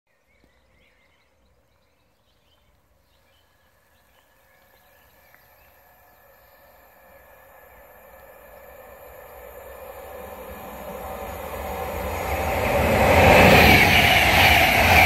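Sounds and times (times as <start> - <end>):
distant train hum: 3.4 - 15.0.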